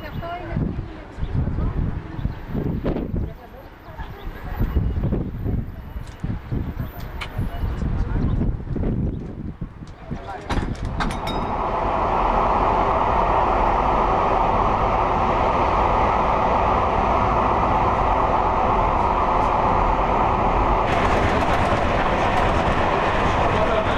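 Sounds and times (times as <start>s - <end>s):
train wheels rumbling on rail: 0.0s - 23.9s.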